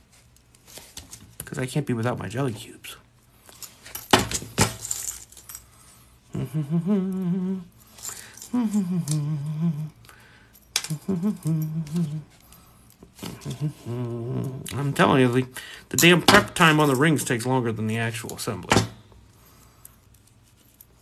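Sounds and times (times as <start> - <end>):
metal rings clinking: 3.5 - 5.8, 7.8 - 9.2, 16.0 - 17.5
person humming: 6.3 - 10.1, 10.8 - 12.4, 13.2 - 15.0.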